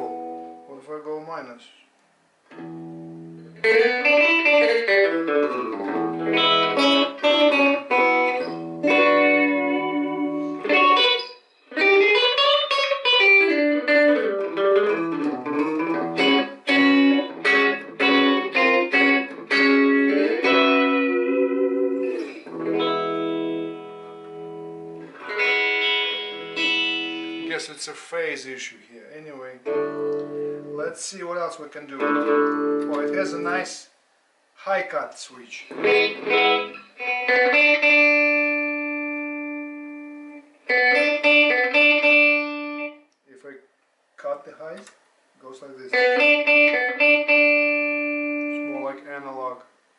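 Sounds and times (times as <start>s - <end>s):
clean electric guitar with delay: 0.0s - 0.7s, 2.5s - 27.6s, 29.7s - 30.9s, 32.0s - 33.6s, 35.7s - 43.0s, 45.9s - 49.0s.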